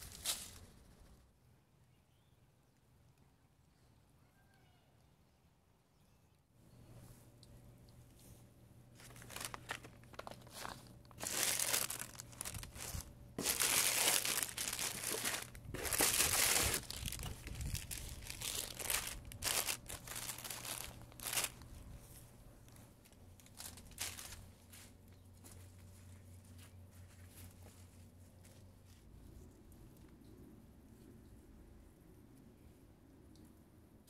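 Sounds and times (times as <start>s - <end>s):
dry leaves rustling: 0.0s - 0.8s, 9.0s - 22.1s, 23.4s - 28.6s
plastic bag crinkling: 9.0s - 22.1s, 22.7s - 24.9s.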